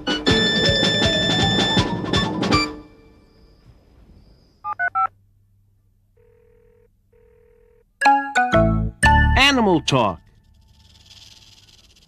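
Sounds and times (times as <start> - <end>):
telephone ringing tones: 6.2 - 7.9.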